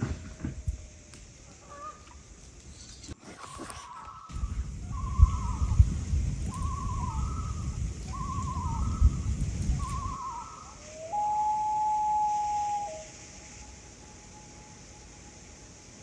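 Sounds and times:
campfire crackling: 0:00.0 - 0:10.9
night bird calling: 0:00.0 - 0:15.7.

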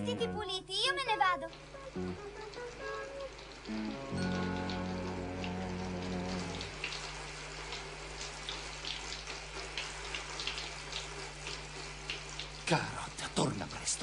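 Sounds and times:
shower spraying water: 0:00.7 - 0:14.0
water drips and splashes: 0:01.4 - 0:14.0
held music chord: 0:01.7 - 0:06.8.

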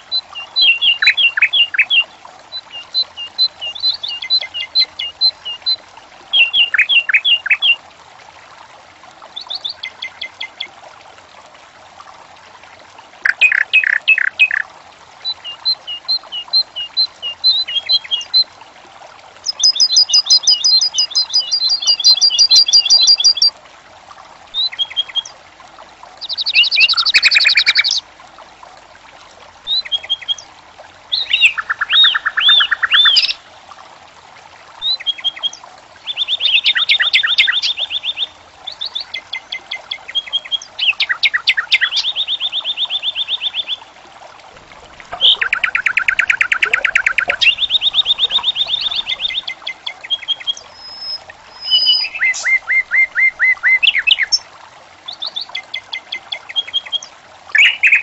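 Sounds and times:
fountain water trickling: 0:00.0 - 0:58.0
songbird trilling: 0:00.3 - 0:02.0, 0:13.2 - 0:14.6, 0:31.1 - 0:33.4, 0:39.0 - 0:43.8, 0:45.0 - 0:54.4, 0:55.3 - 0:58.0.

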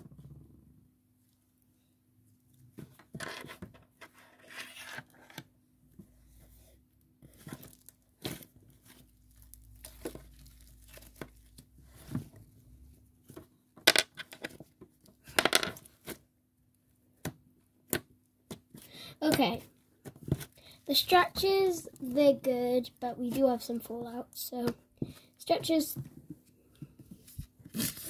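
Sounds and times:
slime squishing and crackling: 0:07.3 - 0:11.7.

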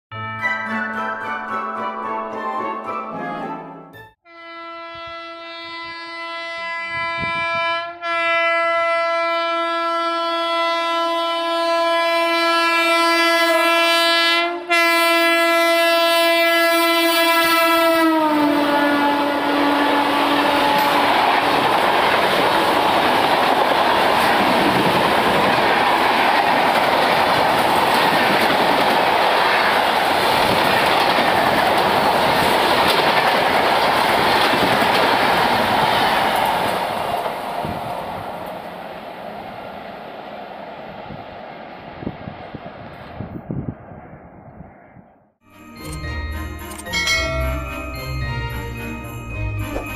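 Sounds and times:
locomotive horn blast: 0:04.2 - 0:21.6
train wheels on rails: 0:18.8 - 0:43.7.

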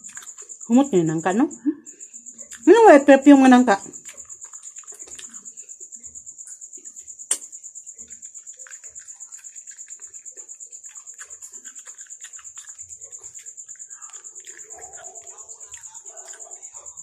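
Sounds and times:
person chewing: 0:00.0 - 0:00.7, 0:01.9 - 0:02.7, 0:03.9 - 0:06.1, 0:06.8 - 0:17.0
sharp click: 0:07.3 - 0:07.5.

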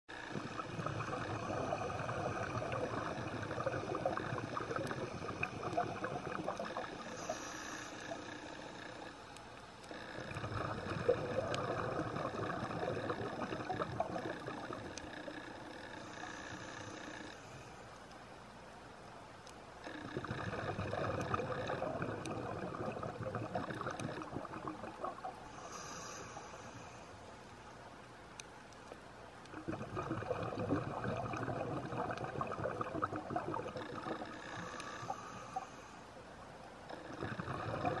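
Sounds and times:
underwater breath bubbling: 0:00.3 - 0:09.1, 0:10.1 - 0:15.3, 0:20.0 - 0:27.2, 0:29.5 - 0:36.1, 0:36.9 - 0:38.0
faint sharp clicks: 0:19.4 - 0:20.0, 0:26.2 - 0:29.6.

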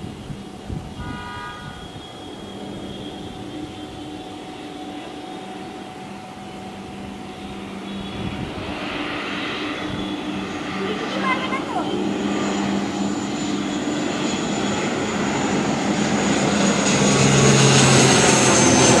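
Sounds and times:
turboprop aircraft drone: 0:00.0 - 0:19.0
horn sounding: 0:01.0 - 0:04.7.

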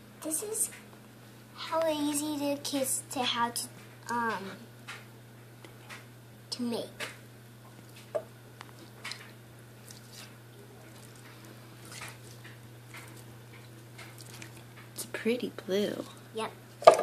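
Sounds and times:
slime squelching: 0:09.0 - 0:15.0.

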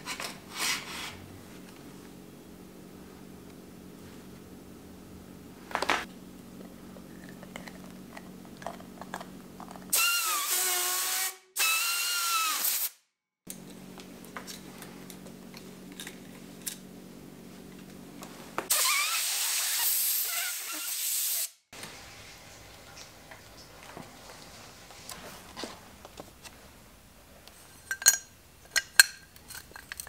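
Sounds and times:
air blow gun hissing: 0:18.7 - 0:21.6.

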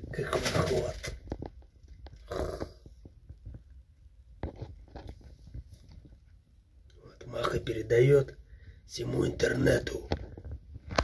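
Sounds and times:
faint clicks and rustles: 0:00.0 - 0:07.0, 0:09.9 - 0:11.0.

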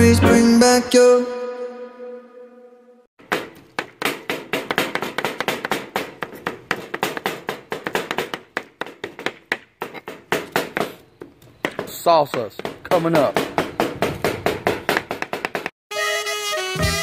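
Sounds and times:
guitar song: 0:00.0 - 0:01.4
knives chopping on plastic boards: 0:03.2 - 0:15.7.

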